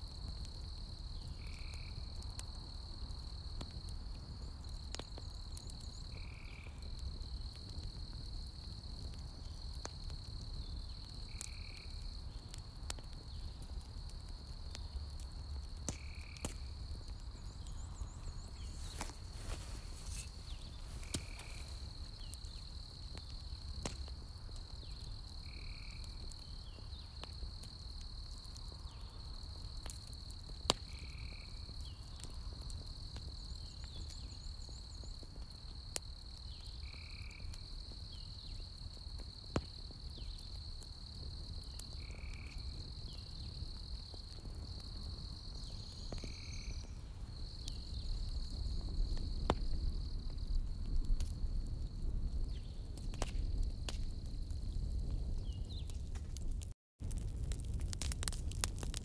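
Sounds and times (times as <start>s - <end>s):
burning logs popping: 0.0s - 59.0s
fire rumbling: 0.0s - 59.0s
high insect trill: 16.0s - 27.2s, 35.8s - 50.5s.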